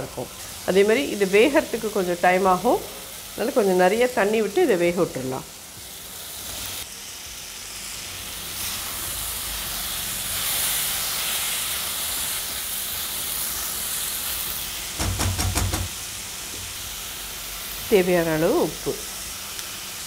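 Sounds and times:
vegetables sizzling in hot oil: 0.0 - 20.0
short knocks: 15.0 - 15.9.

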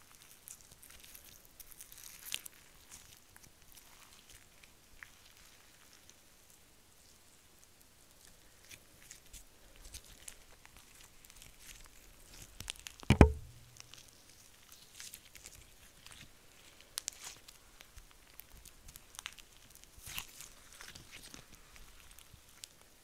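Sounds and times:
slime crackling and popping: 0.0 - 6.2, 8.2 - 23.0
loud thump: 13.1 - 13.8.

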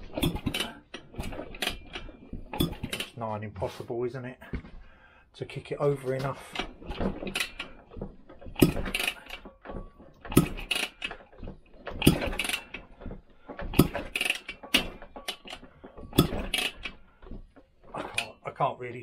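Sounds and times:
engine turned over by kickstart: 0.0 - 3.2, 6.4 - 18.4
kickstart gears clattering: 0.0 - 3.2, 6.0 - 18.4.

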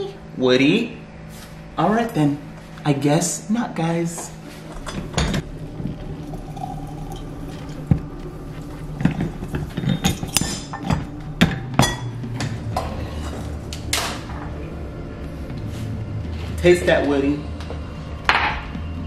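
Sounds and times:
glass clinking: 9.0 - 12.1.

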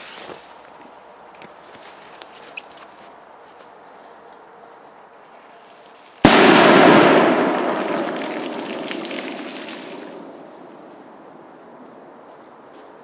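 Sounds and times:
firecracker bang in water: 6.2 - 10.8
rushing water noise: 6.8 - 10.8.

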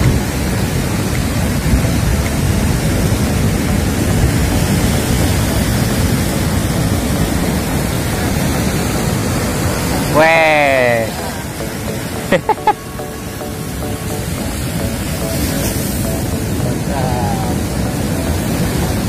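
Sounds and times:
wind rumbling on microphone: 0.0 - 12.3
heavy surf breaking: 0.0 - 19.0.

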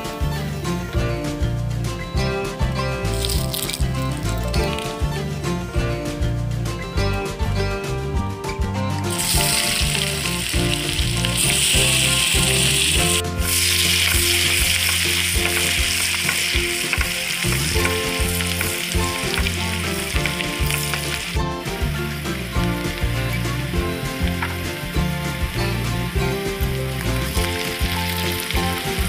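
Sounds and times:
background music: 0.0 - 29.0
onions sizzling in oil: 3.0 - 4.9, 9.0 - 29.0.

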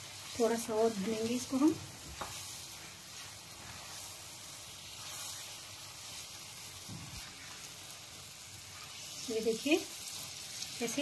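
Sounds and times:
food sizzling in a pan: 0.0 - 11.0
spatula stirring: 0.0 - 11.0.

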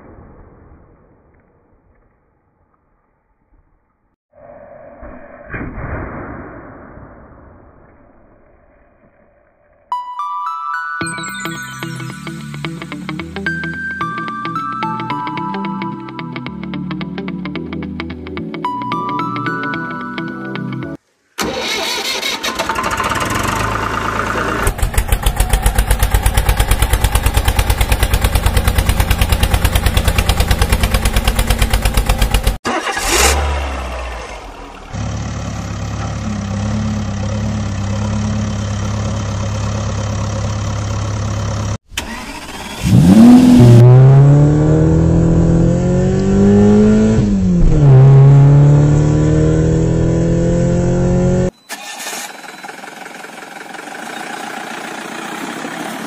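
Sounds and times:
engine revving: 21.4 - 52.3
engine running: 21.4 - 56.0.

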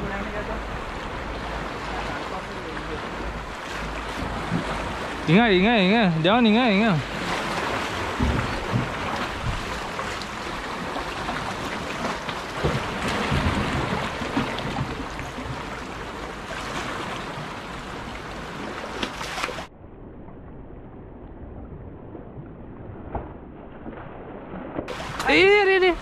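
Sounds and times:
surf washing around rocks: 0.0 - 19.7, 24.9 - 26.0
wind on microphone: 7.0 - 18.8
scattered knocks: 8.2 - 9.6.

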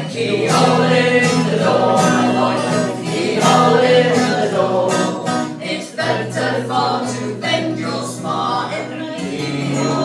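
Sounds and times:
people singing folk song: 0.0 - 10.0.

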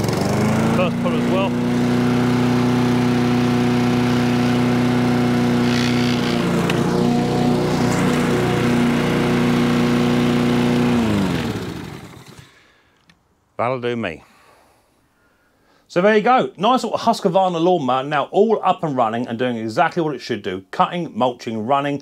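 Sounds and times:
lawn mower engine running: 0.0 - 12.7.

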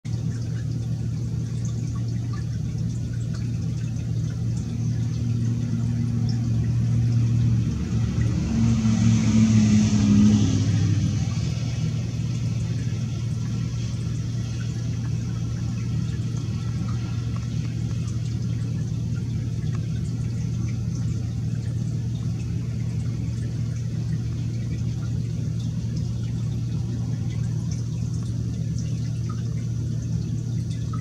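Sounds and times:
steady low hum: 0.0 - 31.0
vehicle passing by: 5.0 - 27.9.

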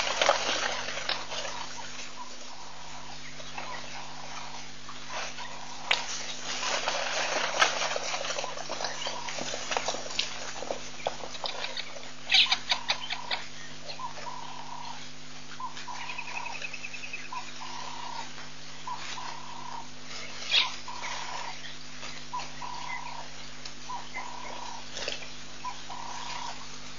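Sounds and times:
clatter of hooves: 0.0 - 2.4, 3.4 - 14.3, 24.2 - 26.7.

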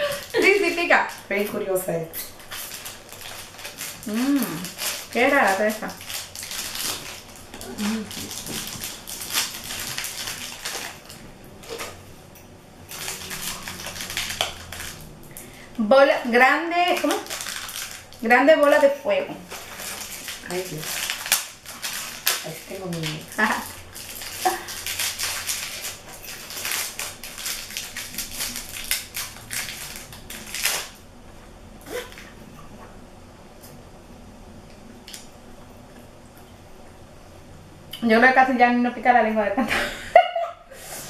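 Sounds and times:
candy wrapper crinkling: 0.0 - 12.0, 12.9 - 15.5, 16.7 - 31.0.

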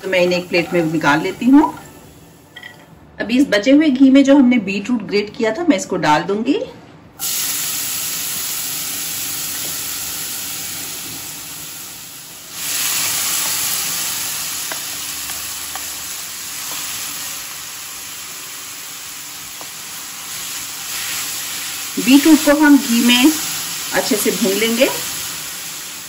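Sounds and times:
beetroot sizzling in hot fat: 7.2 - 26.0.

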